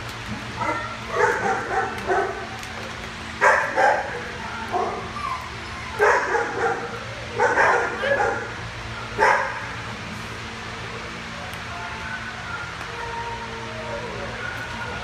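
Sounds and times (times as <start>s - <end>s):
steady low hum: 0.0s - 15.0s
dogs barking and yipping: 0.5s - 9.8s.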